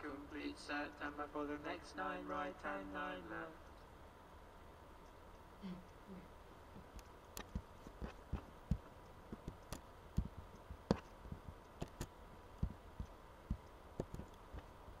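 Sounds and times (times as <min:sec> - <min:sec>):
faint steady hum: 0:00.0 - 0:15.0
sharp clicks: 0:06.9 - 0:14.7.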